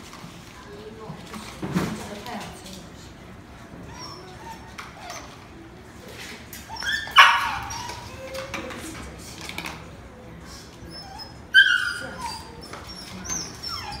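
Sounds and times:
puppies whining: 3.7s - 5.8s, 6.5s - 8.7s, 10.6s - 14.0s
puppy yelp: 3.9s - 5.4s, 6.6s - 8.5s, 10.9s - 14.0s.

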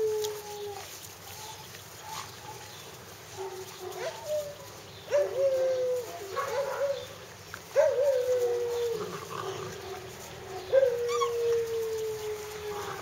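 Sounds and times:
puppy whining: 7.8s - 13.0s.

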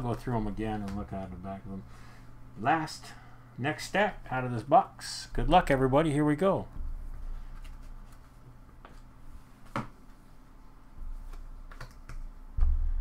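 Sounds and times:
steady low hum: 0.0s - 13.0s
trading cards clicking and tapping: 11.3s - 12.3s.

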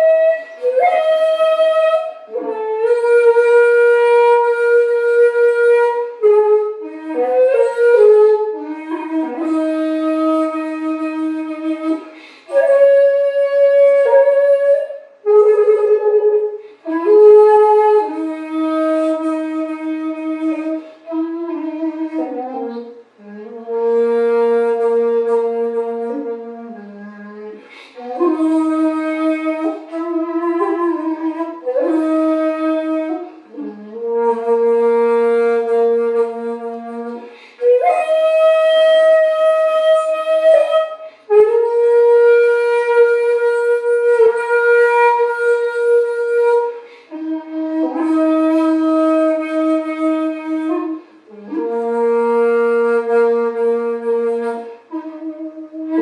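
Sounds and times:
bamboo flute playing: 0.0s - 56.0s.

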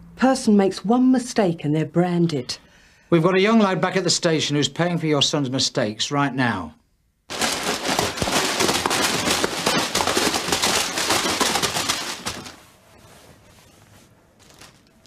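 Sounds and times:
crisp packets crackling: 7.3s - 12.8s, 14.4s - 15.0s.

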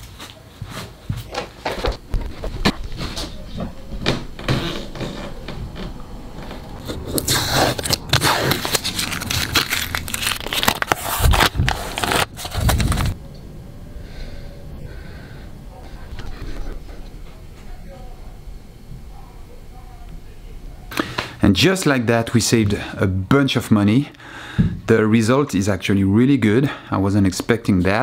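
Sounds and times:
tape peeling off glass: 7.1s - 13.2s.

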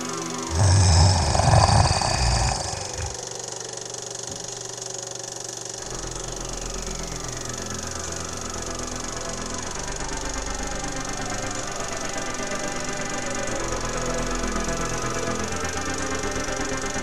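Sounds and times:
eerie drone: 0.0s - 3.2s
monster roar: 0.5s - 3.2s.

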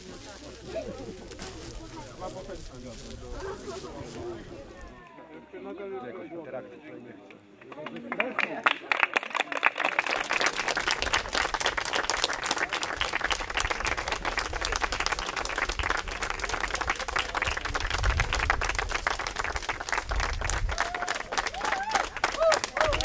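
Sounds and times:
crowd applauding: 7.6s - 23.0s.

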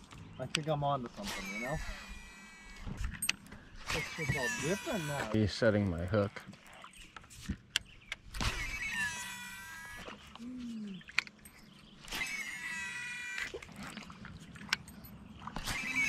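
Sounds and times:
fishing reel whirring: 1.2s - 5.4s, 8.4s - 10.4s, 12.0s - 14.1s, 15.6s - 16.0s.

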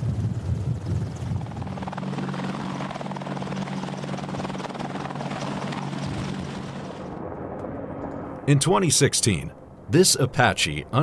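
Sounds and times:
helicopter rotor beating: 0.0s - 8.3s
helicopter engine hum: 0.0s - 11.0s.

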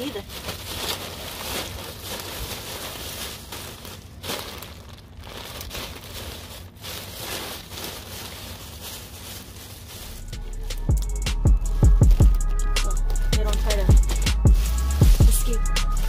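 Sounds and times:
plastic bag crinkling: 0.0s - 11.1s, 11.8s - 15.7s.

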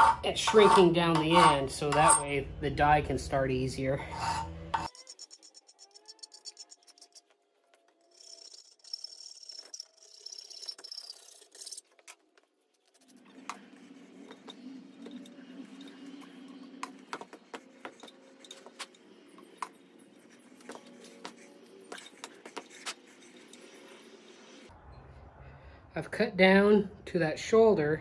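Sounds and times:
file scraping metal: 0.0s - 2.4s, 4.0s - 11.8s.

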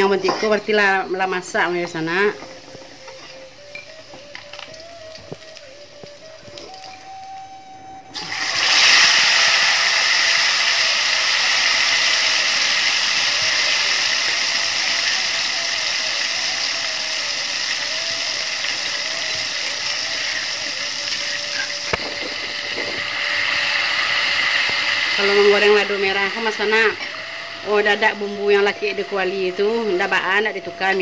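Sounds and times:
chili paste sizzling in oil: 0.0s - 7.5s, 8.1s - 31.0s.

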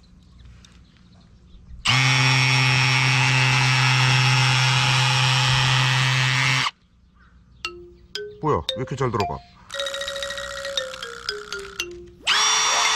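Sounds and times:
cordless drill motor running: 1.9s - 6.7s, 12.3s - 12.9s.

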